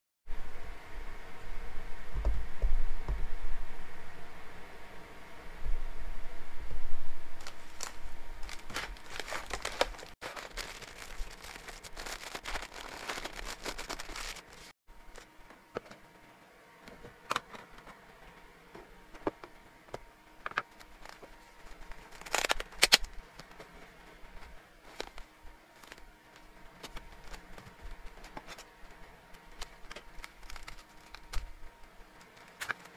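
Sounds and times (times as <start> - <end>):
plastic wrappers crinkling: 7.4 - 14.7, 20.6 - 23.6, 24.8 - 28.7, 29.4 - 32.9.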